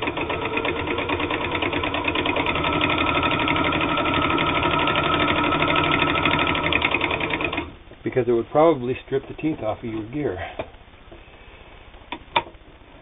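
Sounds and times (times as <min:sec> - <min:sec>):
sewing machine stitching: 0:00.0 - 0:07.8.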